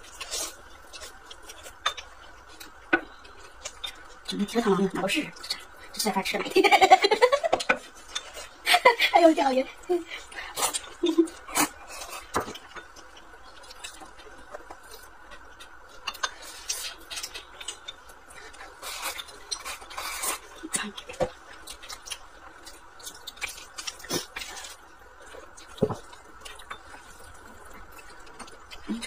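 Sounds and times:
slurping and chewing noodles: 0:10.3 - 0:29.0.

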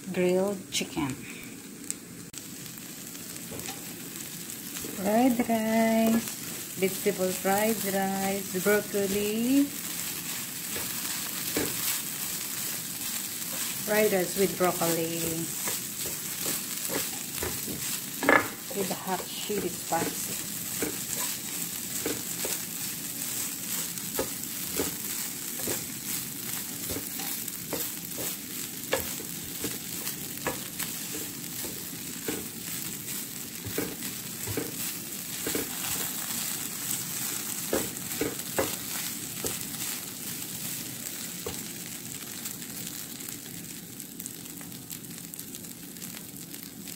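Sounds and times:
fried rice sizzling in a skillet: 0:00.0 - 0:46.9
wooden spatula scraping a pan: 0:06.1 - 0:40.6.

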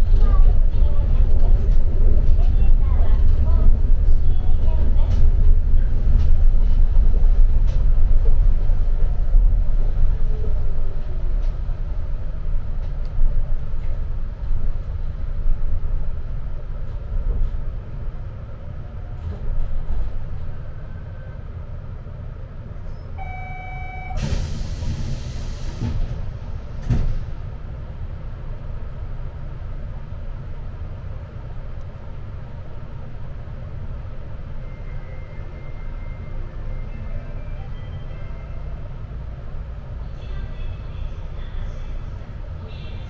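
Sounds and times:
people-mover low rumble: 0:00.0 - 0:23.3, 0:24.1 - 0:43.0
hiss of released air: 0:24.2 - 0:26.0.

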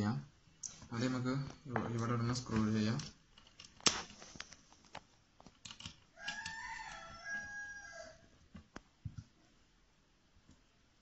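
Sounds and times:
rooster crowing: 0:06.1 - 0:08.4.

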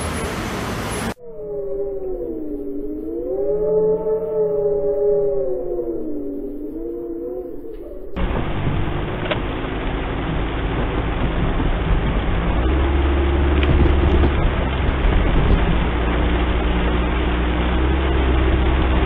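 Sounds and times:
car engine and road hum: 0:00.0 - 0:01.2, 0:07.6 - 0:19.0
heavy rain on car: 0:08.2 - 0:18.4.

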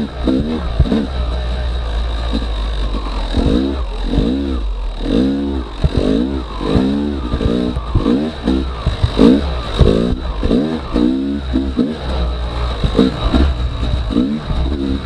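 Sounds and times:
dirt bike engine revving: 0:00.0 - 0:15.0.

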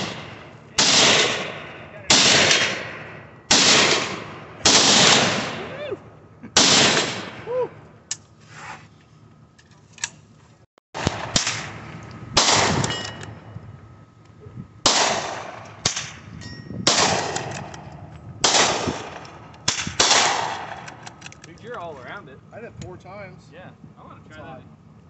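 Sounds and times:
gunshots echoing: 0:00.0 - 0:05.7, 0:06.6 - 0:07.4, 0:11.0 - 0:13.0, 0:14.8 - 0:16.2, 0:16.8 - 0:17.8, 0:18.4 - 0:21.0
steel target ringing: 0:15.8 - 0:16.9.

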